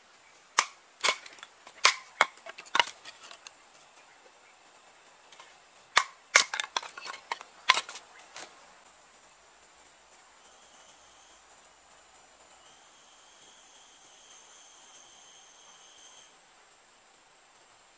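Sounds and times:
machete chopping wood: 0.6 - 3.0, 6.0 - 8.0.

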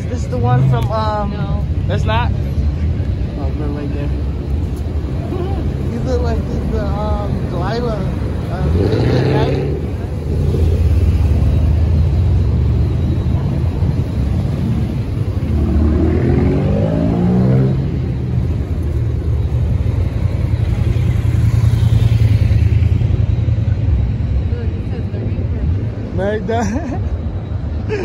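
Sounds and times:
car engine rumbling and revving: 6.0 - 26.1.

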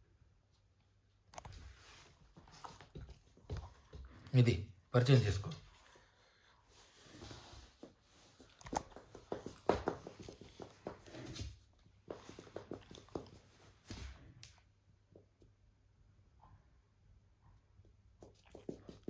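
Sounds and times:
scuffles and knocks: 7.1 - 14.4.

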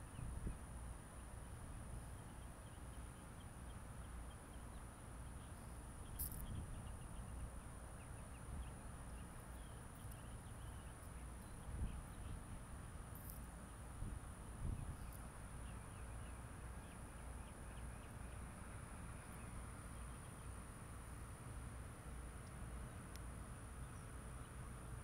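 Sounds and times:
wind rumble on microphone: 0.0 - 0.8, 6.0 - 7.4, 9.6 - 13.0, 13.8 - 18.0
small birds chirping: 1.2 - 20.9, 22.4 - 25.0.

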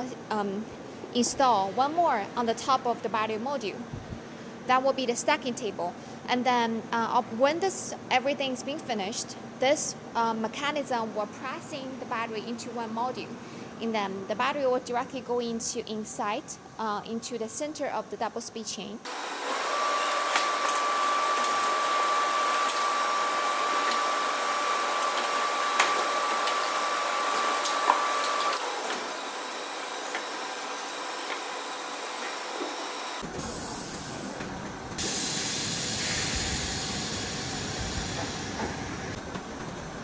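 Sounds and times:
machinery hiss: 19.1 - 34.4, 35.0 - 39.2.

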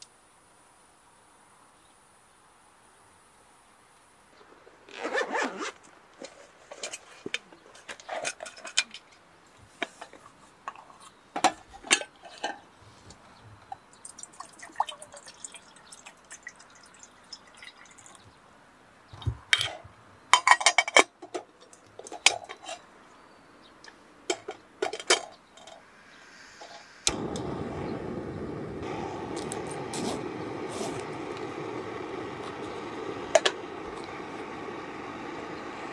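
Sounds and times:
water dripping: 13.9 - 18.2
steady rushing noise: 26.0 - 35.9.

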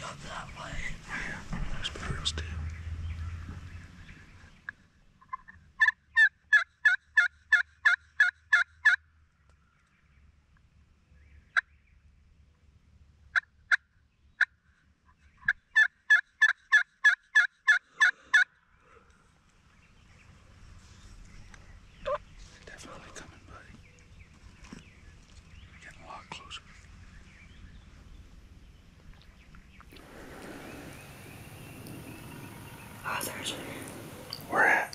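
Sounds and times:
friction turkey call yelps: 5.2 - 9.0, 15.8 - 18.5.

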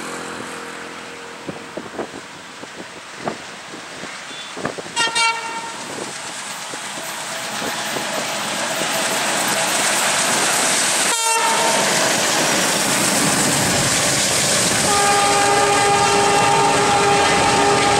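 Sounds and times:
diesel locomotive engines chugging: 0.0 - 17.9
locomotive horn blasts: 4.3 - 5.8, 11.1 - 11.9, 14.8 - 17.9.

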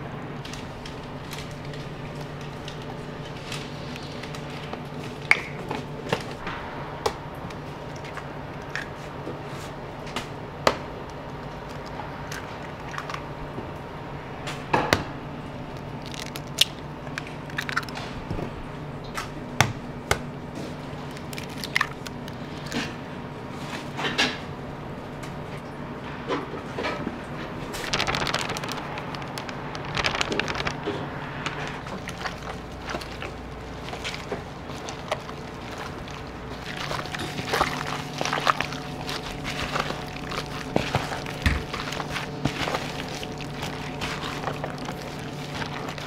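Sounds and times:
steady low hum: 0.0 - 46.0
eggs cracking on plastic tubs: 15.7 - 18.1, 20.9 - 23.0, 27.9 - 46.0.

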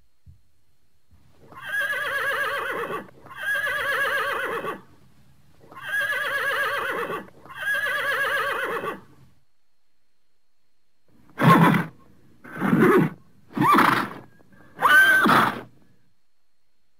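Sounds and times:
horse whinnying: 1.5 - 4.8, 5.7 - 9.0, 11.4 - 15.7.

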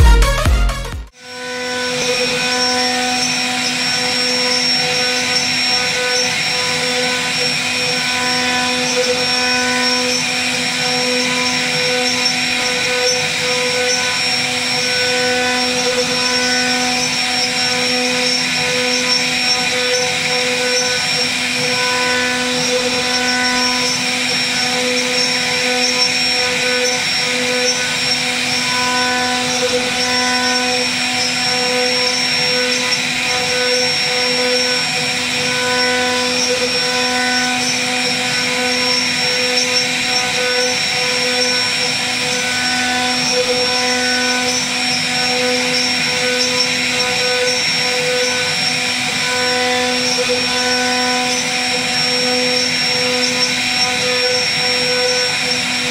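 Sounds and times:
router spindle whine carving wood: 1.1 - 55.9.

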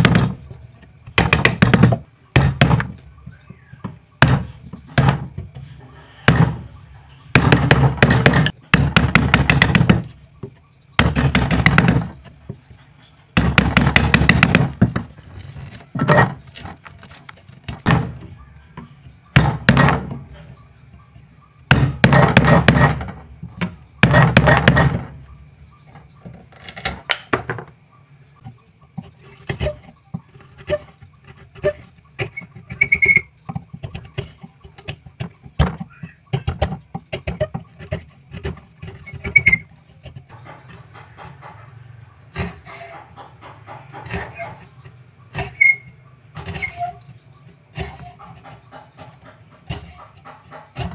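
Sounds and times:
wood squeaking: 0.0 - 27.8, 28.4 - 50.9
chisel scraping wood: 29.0 - 50.9.

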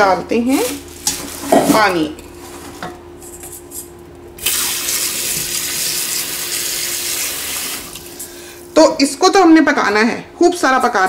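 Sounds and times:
tap water running into a pot: 4.4 - 8.2.

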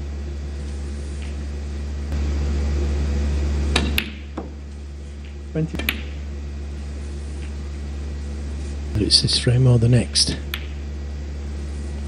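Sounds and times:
low hum: 0.0 - 12.0
snooker balls clicking: 3.7 - 4.6, 5.2 - 6.2, 10.1 - 10.8.

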